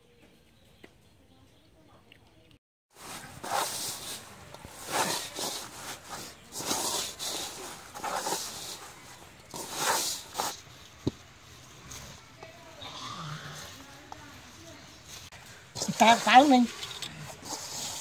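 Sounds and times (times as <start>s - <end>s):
hand scraping mixture in metal bowl: 3.0s - 11.0s, 14.9s - 18.0s.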